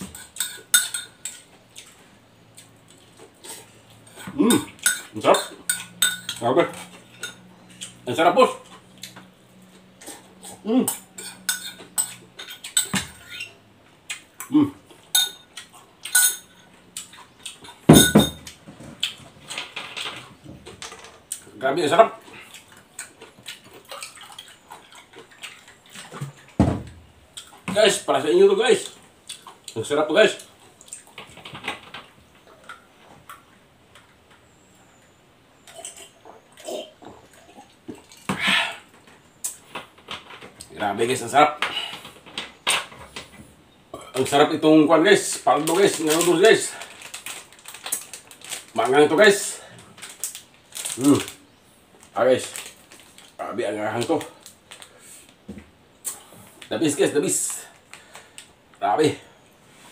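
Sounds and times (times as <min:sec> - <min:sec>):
fork clinking against bowl: 0:00.2 - 0:01.4, 0:04.8 - 0:06.4, 0:10.9 - 0:13.5, 0:15.2 - 0:16.6.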